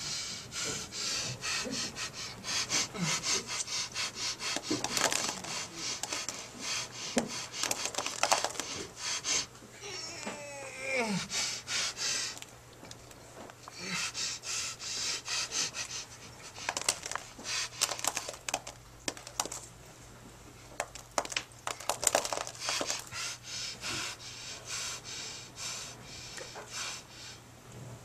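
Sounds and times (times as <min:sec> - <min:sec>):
man breathing heavily: 0:00.0 - 0:09.5, 0:11.0 - 0:12.5, 0:13.6 - 0:18.7, 0:20.9 - 0:27.5
steady low hum: 0:00.0 - 0:28.0
sharp clicks and rustles: 0:04.6 - 0:06.4, 0:07.6 - 0:08.9, 0:16.6 - 0:19.7, 0:20.8 - 0:23.1.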